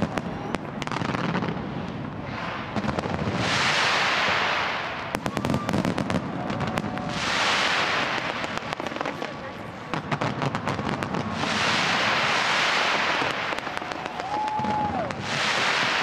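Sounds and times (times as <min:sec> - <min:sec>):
fireworks bangs and crackles: 0:00.0 - 0:16.0
fireworks hiss: 0:00.7 - 0:16.0.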